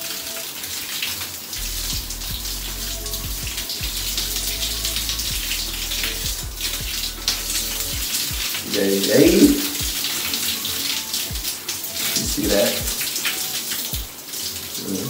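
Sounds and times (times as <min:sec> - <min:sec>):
shower water spraying: 0:00.0 - 0:15.0
low rumble: 0:01.6 - 0:08.1
hair scrubbing: 0:01.6 - 0:15.0.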